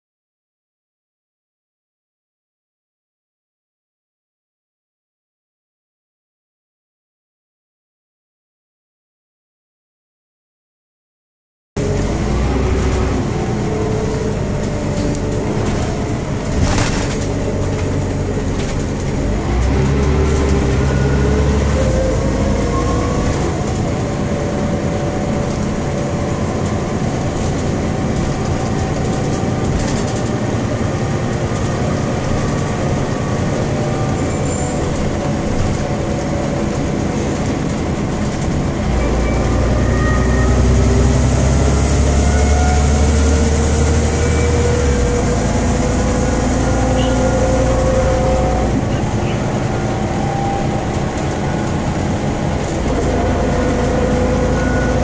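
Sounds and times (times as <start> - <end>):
bus diesel engine running: 11.8 - 55.0
engine rumble accelerating: 11.8 - 55.0.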